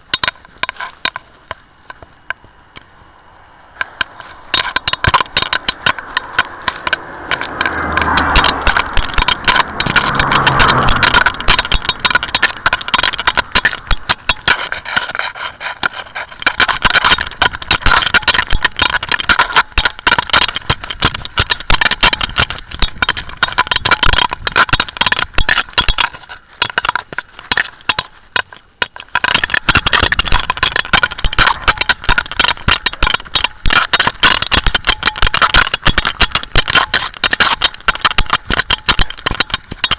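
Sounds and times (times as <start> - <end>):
camera scraping and rustling on fur: 3.8 - 19.6, 20.5 - 28.8.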